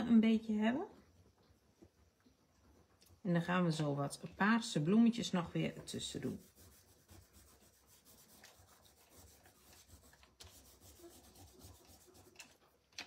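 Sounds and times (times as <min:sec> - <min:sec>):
cloth rubbing on cardstock: 0:05.6 - 0:12.6.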